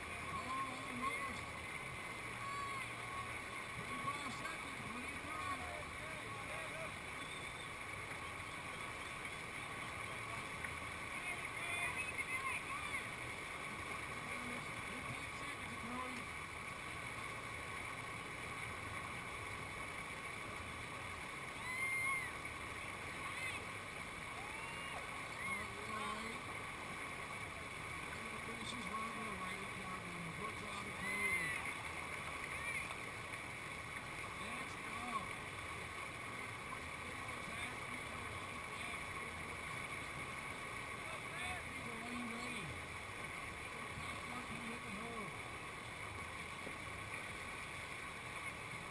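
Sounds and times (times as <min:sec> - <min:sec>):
whitewater rushing over rocks: 0:00.0 - 0:48.9
high-pitched shout: 0:21.6 - 0:22.3, 0:24.4 - 0:25.7.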